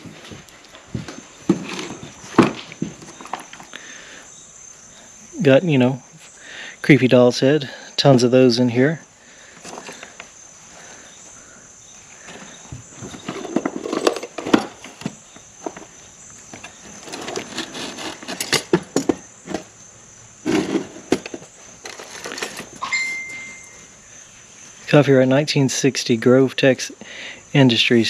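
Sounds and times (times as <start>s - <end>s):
insects chirring: 0.0s - 28.0s
hands rummaging metal attachments: 9.6s - 10.3s, 12.3s - 15.9s, 16.5s - 19.7s, 20.4s - 23.8s.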